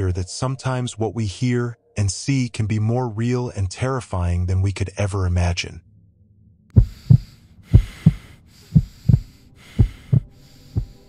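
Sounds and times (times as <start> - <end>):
heartbeat thumps: 6.8 - 11.0.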